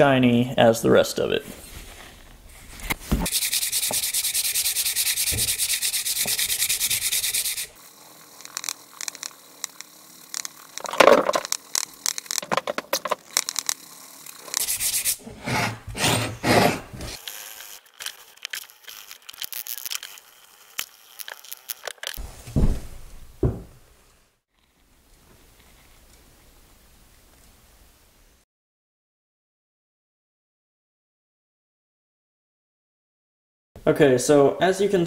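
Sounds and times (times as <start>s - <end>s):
sandpaper scraping steel: 2.6s - 9.4s, 13.4s - 20.2s.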